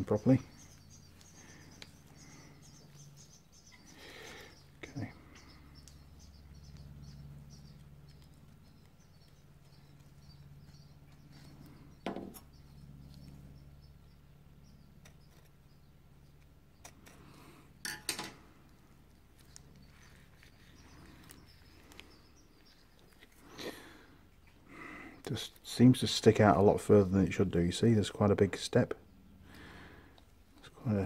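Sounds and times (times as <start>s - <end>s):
low steady hum: 0.0s - 31.0s
metal tools clicking and knocking: 17.8s - 18.4s.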